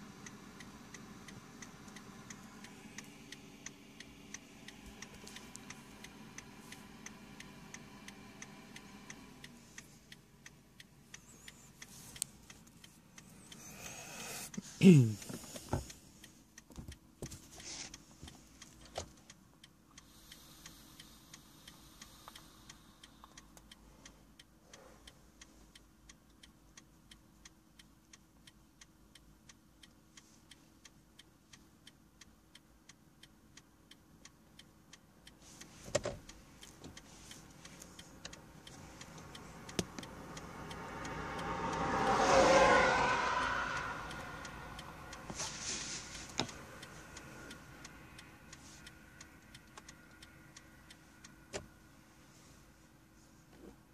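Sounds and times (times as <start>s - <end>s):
vehicle passing: 0.0s - 15.0s, 37.1s - 50.9s
hazard-light flasher ticking: 0.0s - 52.0s.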